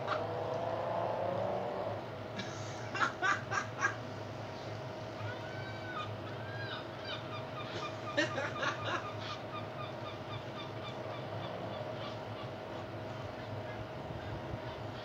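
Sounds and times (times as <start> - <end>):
transformer humming: 0.0 - 4.0
birds chirping: 4.5 - 15.0.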